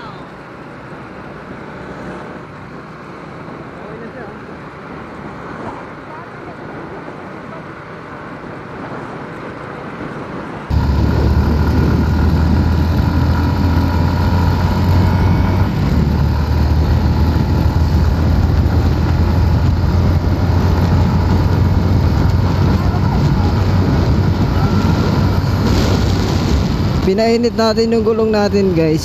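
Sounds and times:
road noise: 0.0 - 29.0
loud rushing noise: 10.6 - 27.8
motorcycle engine rumble: 10.7 - 29.0.

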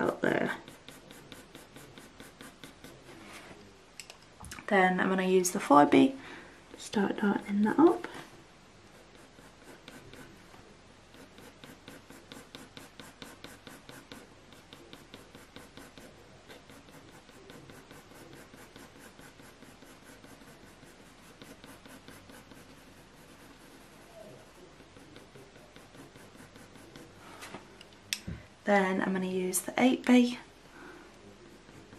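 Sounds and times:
pencil scratching on paper: 0.0 - 3.4, 8.9 - 27.4, 31.3 - 31.9.

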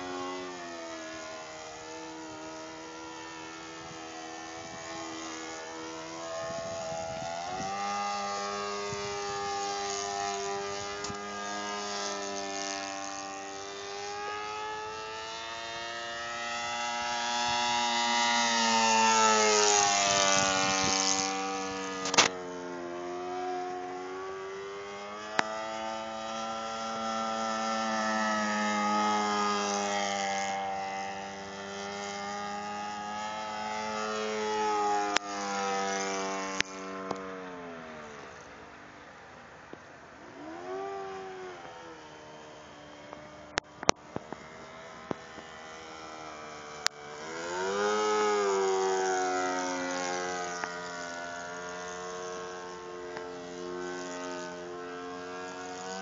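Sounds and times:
model airplane engine running: 0.0 - 56.0
sharp click: 22.0 - 22.4.

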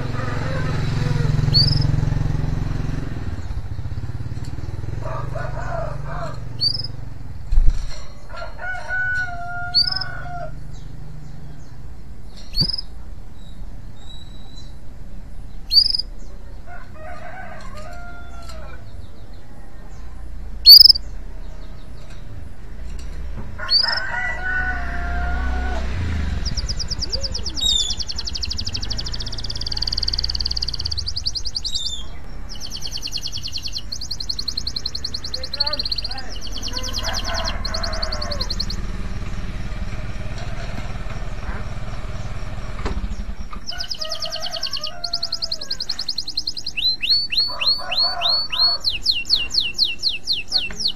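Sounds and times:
canary chirps: 0.9 - 2.8, 3.4 - 8.5, 9.2 - 16.8, 17.8 - 22.4, 23.6 - 24.9, 26.2 - 50.9
canary trilled song: 1.3 - 2.4, 6.2 - 14.9, 15.5 - 16.3, 20.6 - 24.2, 26.4 - 40.4, 43.2 - 50.9.

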